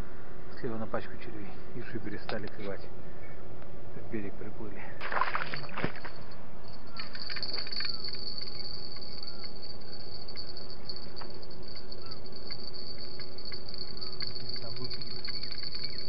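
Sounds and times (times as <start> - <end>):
crickets chirring: 5.2 - 16.0
short faint insect calls: 5.3 - 16.0.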